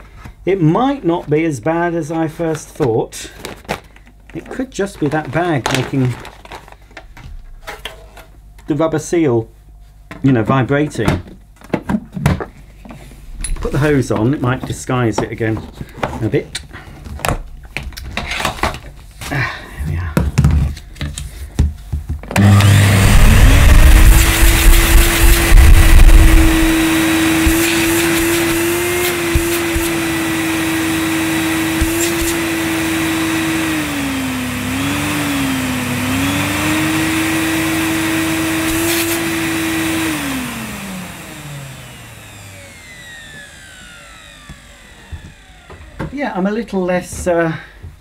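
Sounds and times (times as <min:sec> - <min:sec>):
vacuum cleaner motor whining: 0:22.3 - 0:46.6.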